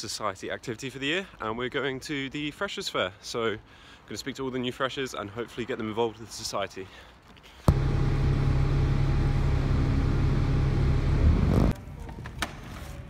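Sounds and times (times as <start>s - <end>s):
vehicle engine running: 7.7s - 11.7s.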